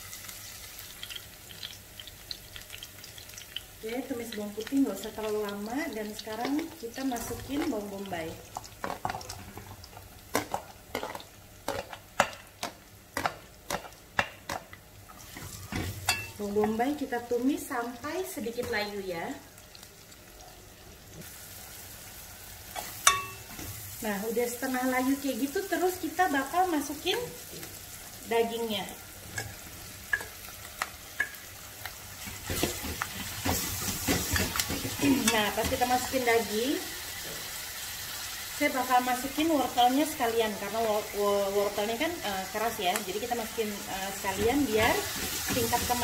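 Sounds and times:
garlic sizzling in oil: 0:00.0 - 0:46.0.

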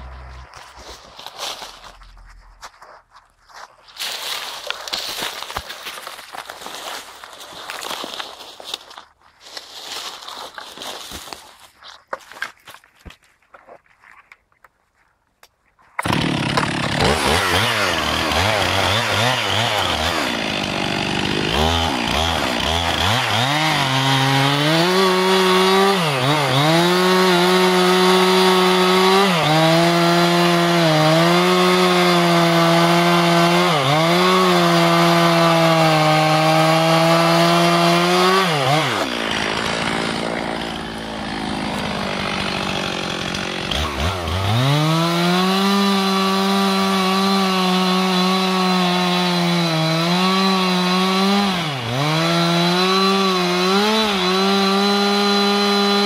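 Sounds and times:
chainsaw revving and cutting wood: 0:00.0 - 0:02.1, 0:16.0 - 0:56.0.

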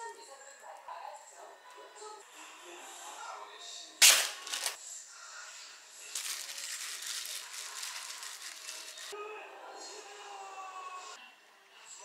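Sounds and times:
plastic glove crinkling: 0:04.0 - 0:04.8, 0:06.1 - 0:09.2.

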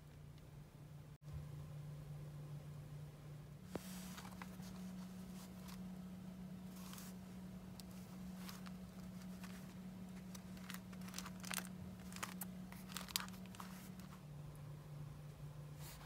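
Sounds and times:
faint steady hum: 0:00.0 - 0:16.0
paper and card rustling: 0:03.7 - 0:06.0, 0:06.6 - 0:14.2.

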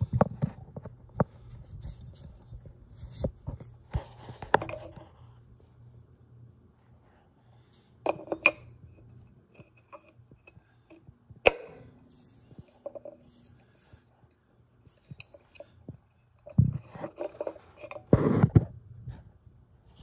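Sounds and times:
metal fan parts clinking: 0:01.8 - 0:05.2, 0:08.0 - 0:18.1
knocking and scraping: 0:08.0 - 0:14.1, 0:14.8 - 0:19.2.

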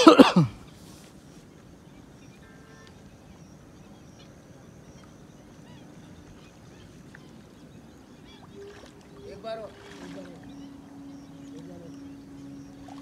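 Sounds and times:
low background noise: 0:00.0 - 0:13.0
short bird calls: 0:02.2 - 0:13.0
thin high-pitched tone: 0:08.5 - 0:13.0.

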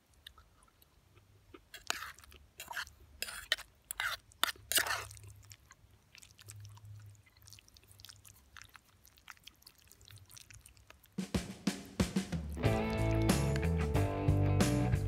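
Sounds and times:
person chewing: 0:00.0 - 0:11.2, 0:12.4 - 0:13.8.

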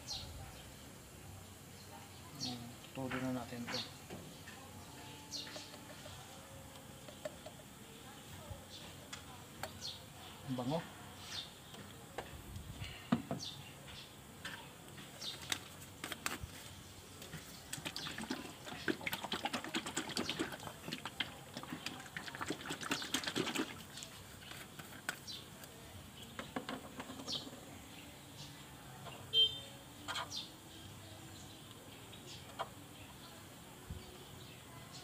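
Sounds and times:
oil sloshing in shaken bottle: 0:17.7 - 0:25.1.

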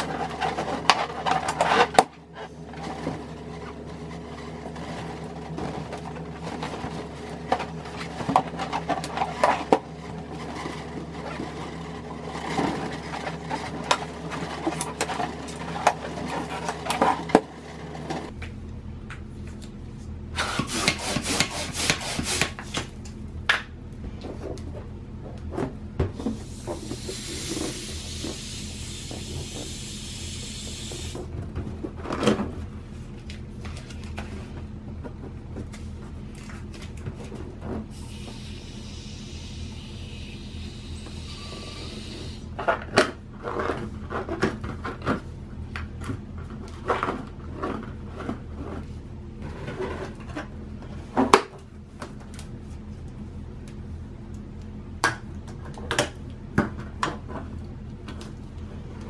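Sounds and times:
hiss of air: 0:26.4 - 0:31.2, 0:38.0 - 0:42.5.

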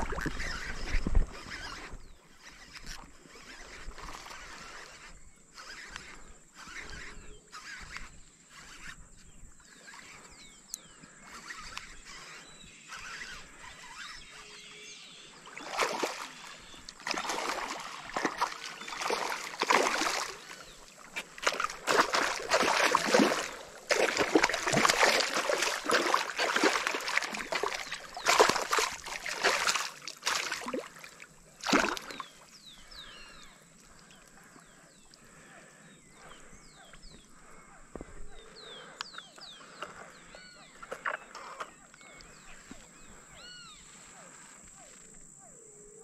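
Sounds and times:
water splashing from thrashing fish: 0:15.4 - 0:32.3.

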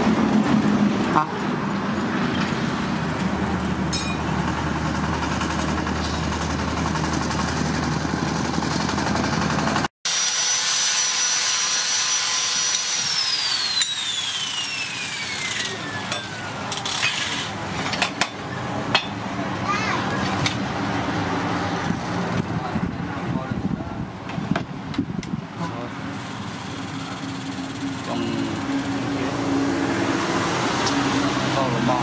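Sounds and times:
street traffic: 0:00.0 - 0:09.9, 0:13.5 - 0:32.0
power tool motor whine: 0:10.1 - 0:17.5.

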